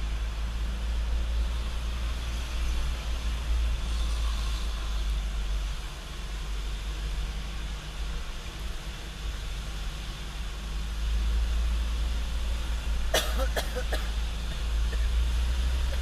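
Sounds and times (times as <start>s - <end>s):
truck engine droning: 0.0s - 16.0s
short sharp cough-like sounds: 13.1s - 14.2s.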